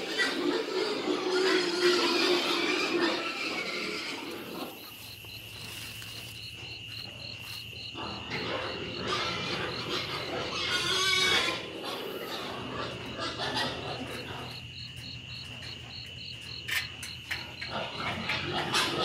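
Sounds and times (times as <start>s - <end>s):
night insects trilling: 0.0s - 19.0s
rustling and scraping: 3.8s - 9.4s.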